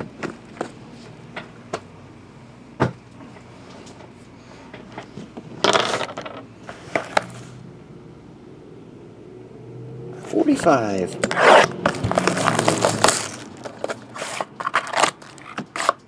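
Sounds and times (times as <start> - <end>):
cardboard scraping: 11.2 - 16.0.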